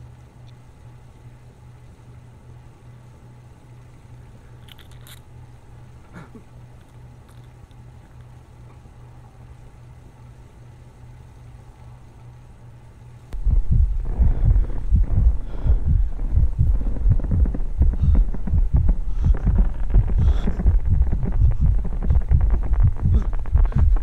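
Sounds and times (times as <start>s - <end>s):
faint low hum: 0.0s - 24.0s
deep throbbing thumps: 13.4s - 24.0s.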